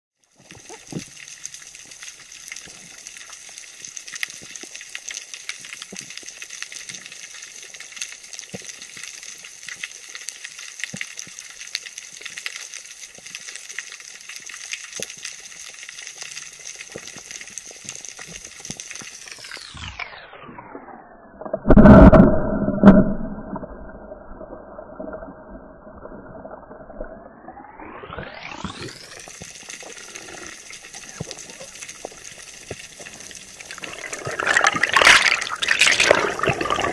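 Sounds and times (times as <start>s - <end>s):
crackle of sharp clicks: 0.4s - 19.7s
underwater hiss: 28.9s - 36.9s.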